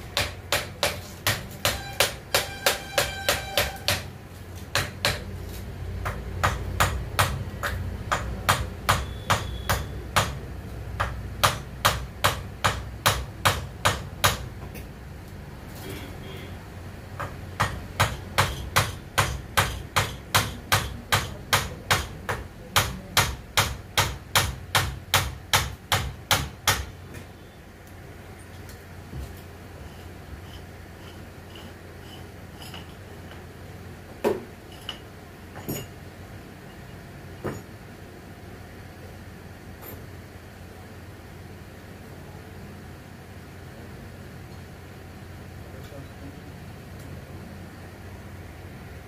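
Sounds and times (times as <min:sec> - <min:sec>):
hammering on metal: 0:00.0 - 0:05.3, 0:06.0 - 0:10.4, 0:11.0 - 0:14.5, 0:17.2 - 0:27.0.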